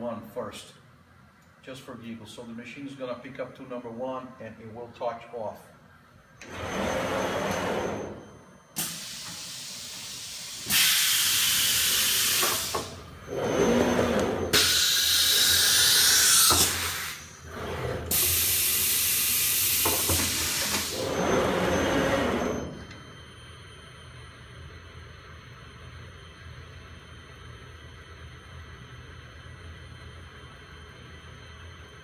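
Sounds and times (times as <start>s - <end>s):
compressed air hissing: 8.8s - 13.0s, 14.5s - 17.3s.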